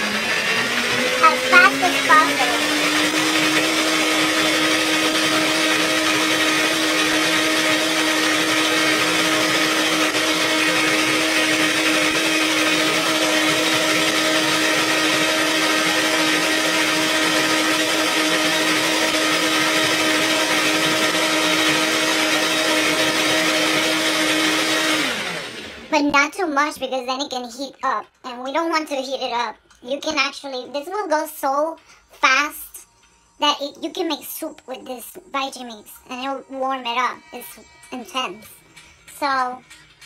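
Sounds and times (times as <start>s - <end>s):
blender motor whine: 0.0s - 25.9s
blender motor winding down: 0.0s - 25.9s.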